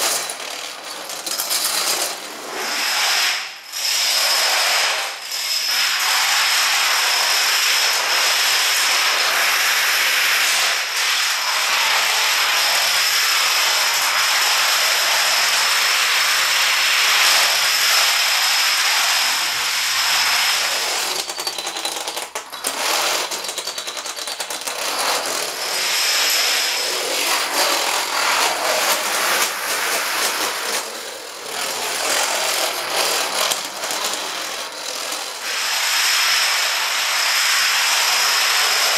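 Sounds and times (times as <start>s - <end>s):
plastic dominoes clattering: 0.0s - 2.8s, 17.2s - 35.6s.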